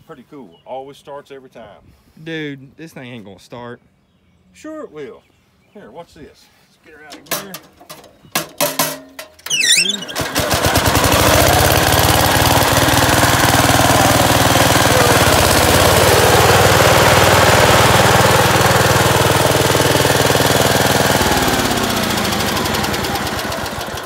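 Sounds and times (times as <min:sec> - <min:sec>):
lawn tractor engine running: 0:07.0 - 0:24.0.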